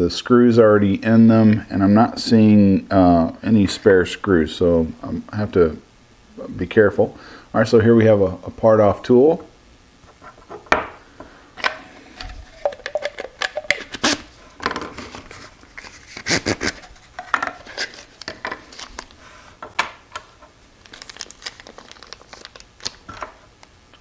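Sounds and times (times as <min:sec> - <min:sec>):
plastic wrap rustling: 0:12.2 - 0:23.7.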